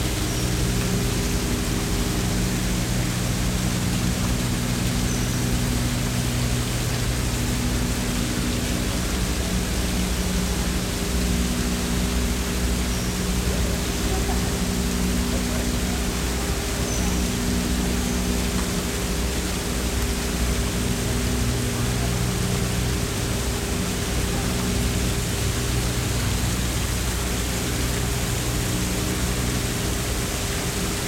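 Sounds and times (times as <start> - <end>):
low even hum: 0.0 - 31.0
steady rushing ambient noise: 0.0 - 31.0.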